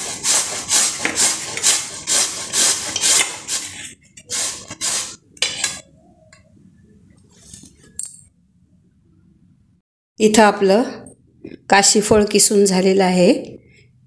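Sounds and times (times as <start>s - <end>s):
grater rasping: 0.0s - 5.8s.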